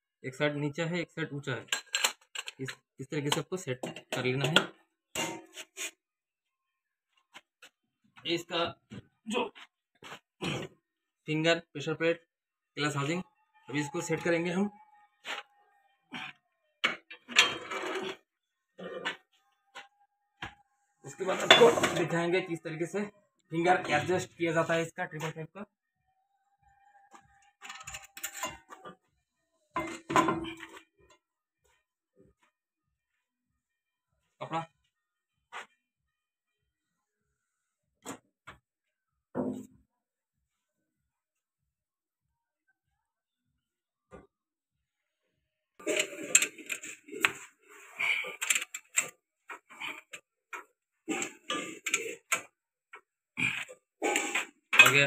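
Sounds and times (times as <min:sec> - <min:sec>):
metal parts clinking and clanking: 0:01.7 - 0:02.8, 0:17.1 - 0:18.2, 0:27.6 - 0:28.8, 0:45.8 - 0:47.2, 0:48.4 - 0:49.1, 0:54.1 - 0:55.0.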